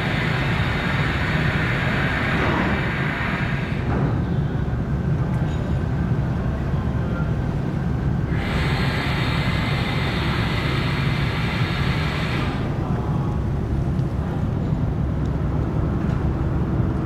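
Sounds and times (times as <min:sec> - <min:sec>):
ship engines low rumble: 0:00.0 - 0:17.0
steady hiss: 0:08.4 - 0:12.8.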